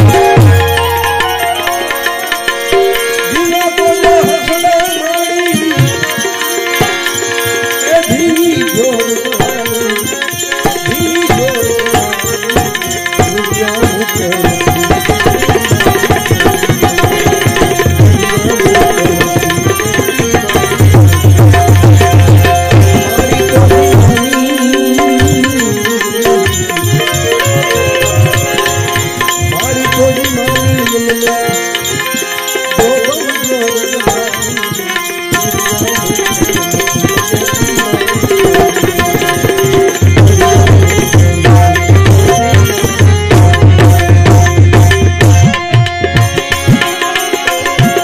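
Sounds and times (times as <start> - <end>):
sustained instrumental notes: 0.0 - 48.0
tabla drumming: 0.0 - 48.0
man singing: 2.7 - 48.0.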